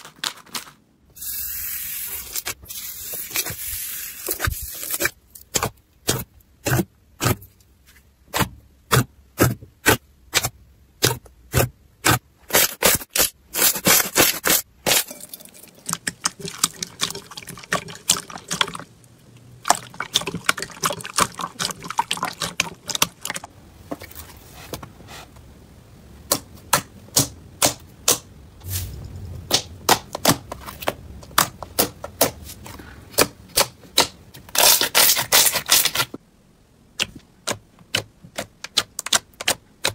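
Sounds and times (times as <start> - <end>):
wet slime squelching: 12.0 - 24.2.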